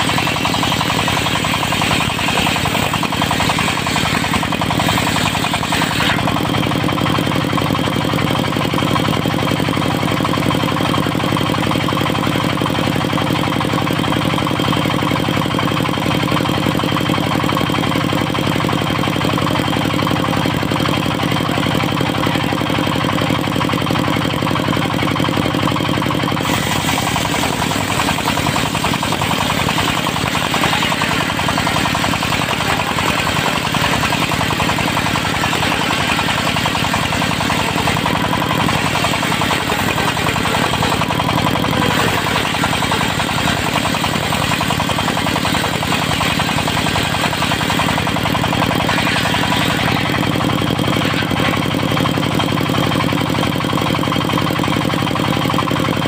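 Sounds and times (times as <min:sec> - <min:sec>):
saw blade cutting log: 0:00.0 - 0:08.0, 0:26.2 - 0:52.4
diesel engine running: 0:00.0 - 0:56.0.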